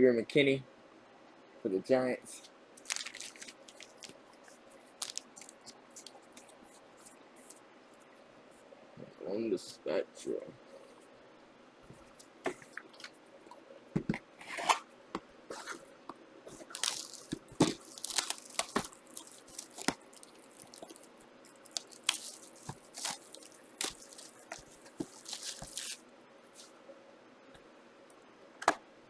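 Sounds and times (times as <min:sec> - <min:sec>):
plastic wrappers crinkling: 0:02.8 - 0:07.6, 0:16.5 - 0:26.0.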